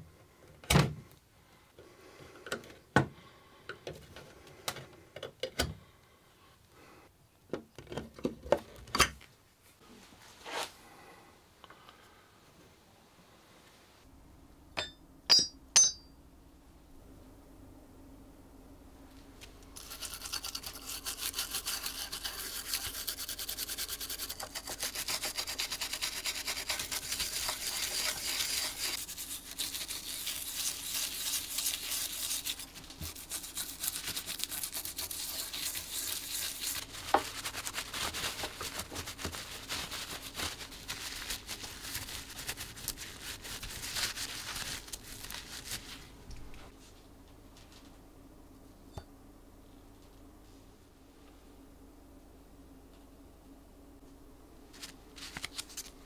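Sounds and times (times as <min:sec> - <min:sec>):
toothbrush scrubbing metal: 0:19.8 - 0:44.4.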